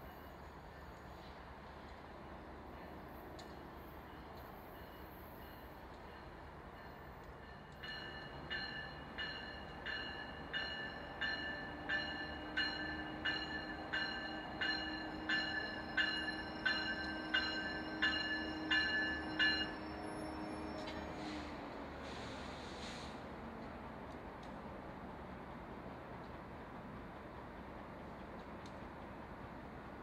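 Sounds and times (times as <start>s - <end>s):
train humming: 0.0s - 30.0s
railway bell ringing: 4.0s - 21.4s.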